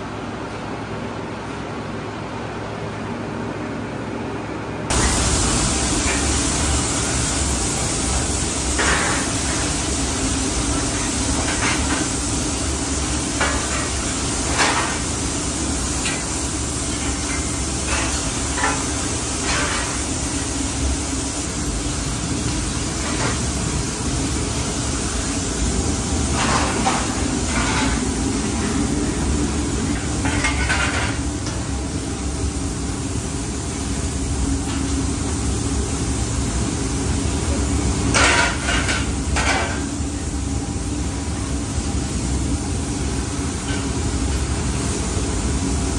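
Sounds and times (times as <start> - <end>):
factory machinery humming: 0.0 - 45.9
hisses: 4.9 - 28.8.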